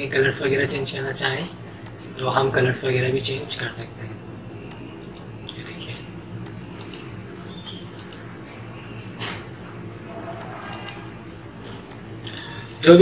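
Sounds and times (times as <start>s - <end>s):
low room hum: 0.0s - 13.0s
computer mouse clicks: 4.6s - 5.6s, 6.4s - 12.6s.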